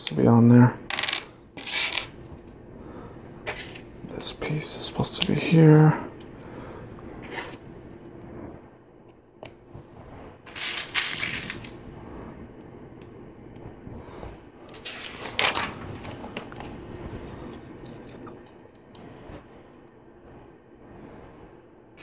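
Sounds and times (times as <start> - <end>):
plastic parts clattering: 10.5 - 11.8.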